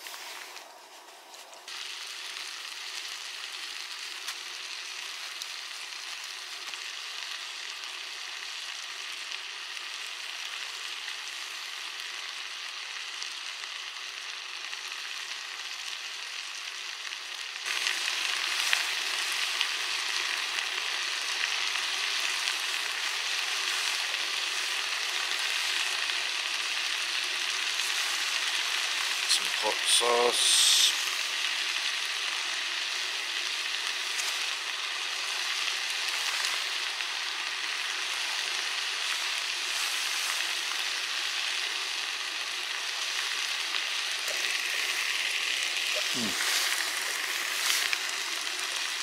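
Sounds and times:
meat sizzling in a frying pan: 1.7s - 49.0s.

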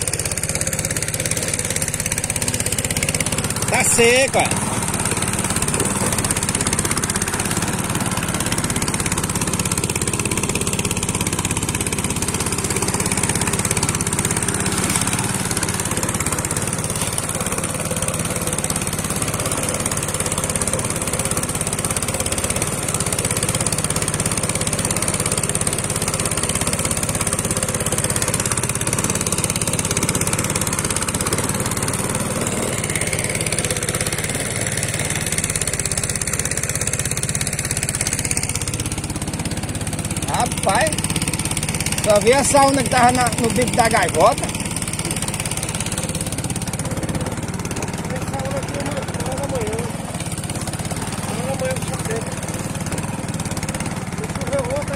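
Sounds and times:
boat engine running steadily: 0.0s - 54.9s.

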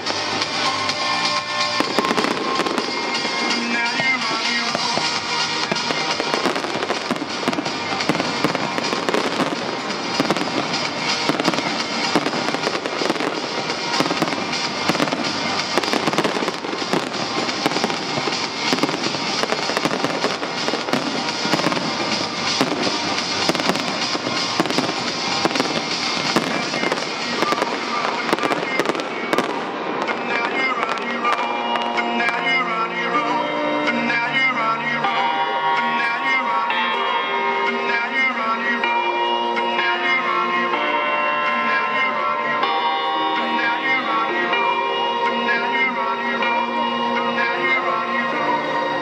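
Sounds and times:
fireworks bangs and crackling: 0.0s - 37.2s
music soundtrack: 0.0s - 49.0s.

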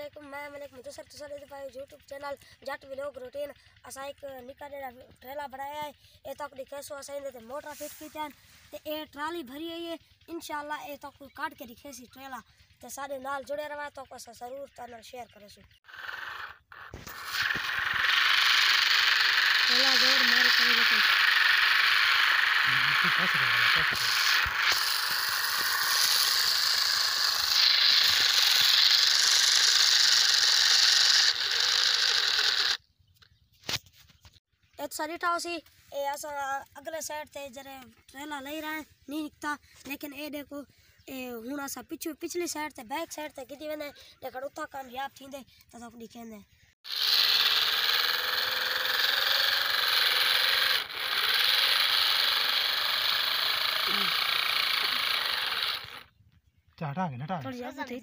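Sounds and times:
small electric motor whirring: 15.8s - 32.9s, 46.8s - 56.2s.

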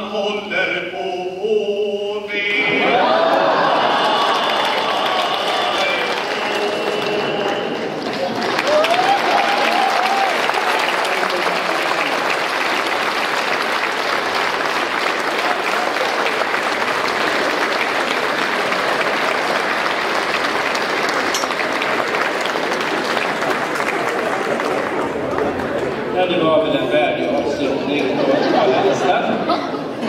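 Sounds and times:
audience applauding: 2.6s - 26.2s.

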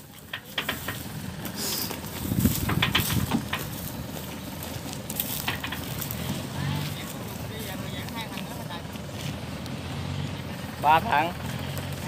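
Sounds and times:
outdoor background noise: 0.0s - 12.0s
footsteps on metal ramp: 0.2s - 1.2s, 2.0s - 6.4s
dull thuds: 2.3s - 4.1s.

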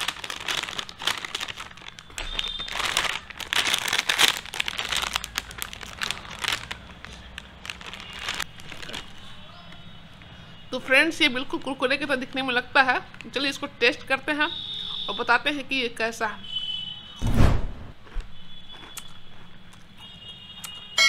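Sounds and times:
plastic packet crinkling: 0.0s - 9.2s.

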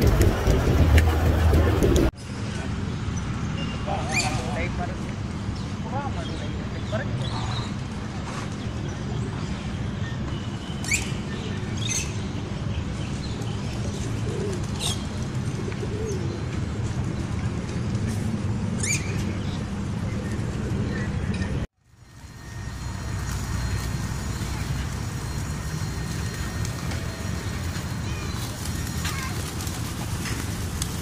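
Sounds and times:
pigeons cooing: 13.8s - 16.6s.

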